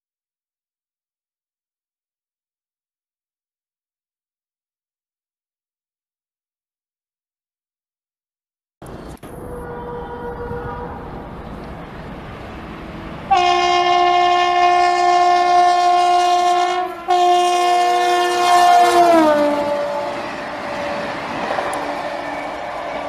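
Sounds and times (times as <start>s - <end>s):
train coaches rushing by: 8.8s - 23.0s
train horn blasts: 9.3s - 11.4s, 13.3s - 20.5s.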